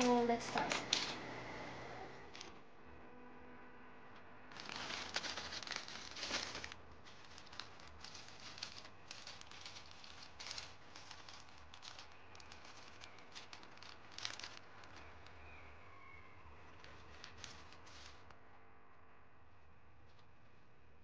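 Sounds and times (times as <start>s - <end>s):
plastic bags crinkling: 0.0s - 1.2s, 4.5s - 15.7s, 16.6s - 18.3s.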